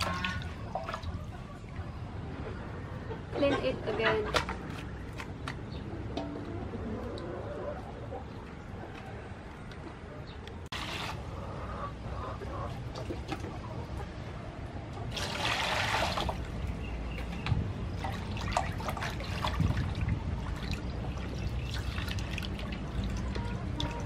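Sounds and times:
water sloshing and splashing: 0.0s - 2.0s, 12.4s - 14.2s, 15.0s - 24.0s.

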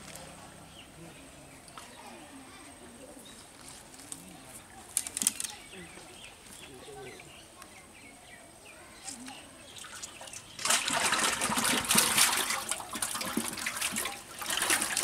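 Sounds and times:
water splashing and sloshing: 9.7s - 15.0s.

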